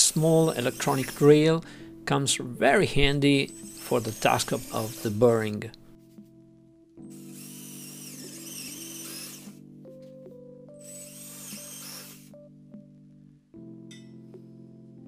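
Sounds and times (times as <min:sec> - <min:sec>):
cordless drill whining: 0:00.0 - 0:01.4, 0:03.5 - 0:05.5, 0:07.0 - 0:09.6, 0:10.8 - 0:12.4
background music: 0:00.0 - 0:15.0.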